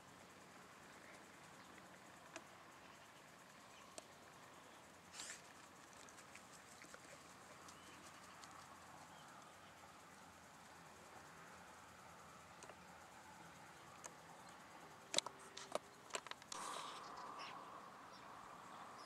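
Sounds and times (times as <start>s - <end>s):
faint steady hiss: 0.0s - 19.0s
small ticks: 0.3s - 18.2s.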